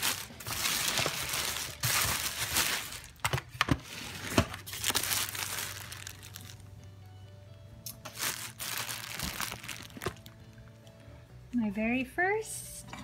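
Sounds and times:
plastic bag crinkling and rustling: 0.0 - 6.7, 8.0 - 10.6.

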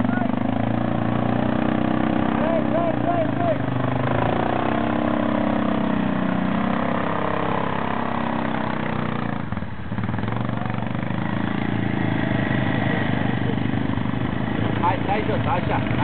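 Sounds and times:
atv engine running under load: 0.0 - 16.0.

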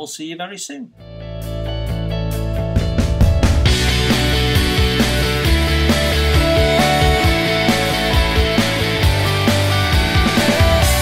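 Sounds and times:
rock music: 1.0 - 11.0
steady drum beat: 2.3 - 11.0.

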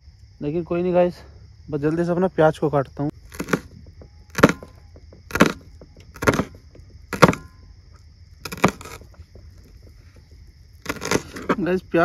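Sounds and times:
knife cutting through onion: 3.2 - 4.7, 5.3 - 7.6, 8.4 - 9.1, 10.8 - 11.7.

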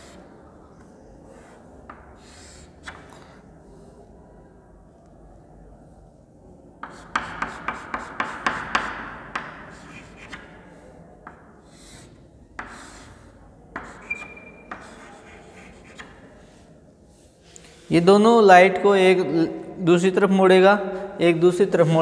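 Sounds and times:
chalk scraping strokes: 0.0 - 0.4, 1.2 - 3.5, 6.8 - 10.9, 11.6 - 18.0
chalk ticking on chalkboard: 6.8 - 10.6, 11.3 - 13.2, 13.8 - 16.3
chalk squeak: 13.8 - 16.2.

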